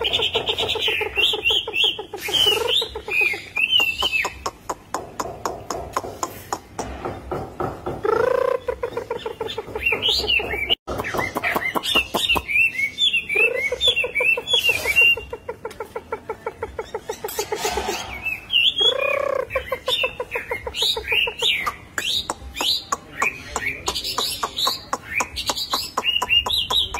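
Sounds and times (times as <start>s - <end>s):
bird singing whistled phrases: 0.0s - 4.4s, 9.8s - 15.3s, 17.7s - 20.1s.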